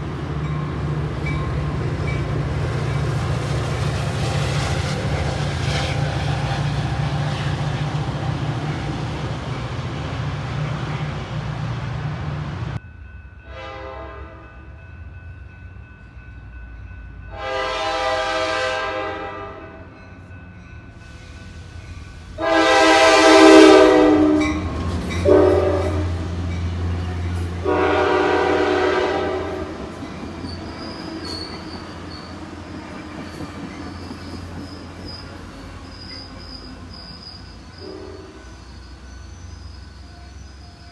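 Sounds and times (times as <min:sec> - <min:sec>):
train rumbling past: 0:00.0 - 0:40.9
train horn blasts: 0:13.4 - 0:14.7, 0:17.3 - 0:19.9, 0:22.4 - 0:26.4, 0:27.0 - 0:29.9, 0:37.8 - 0:38.8.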